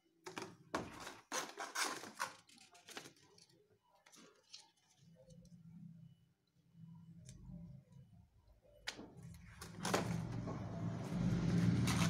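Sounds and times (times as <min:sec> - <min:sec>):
cardboard and paper rustling: 0:00.3 - 0:05.5.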